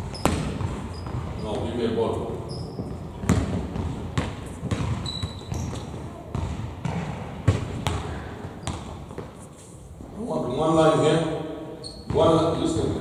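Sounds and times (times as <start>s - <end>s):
basketball bouncing on floor: 0.0s - 1.6s, 2.8s - 9.4s
shoe squeak: 0.0s - 3.1s, 4.6s - 6.0s, 8.5s - 9.7s, 11.8s - 12.4s.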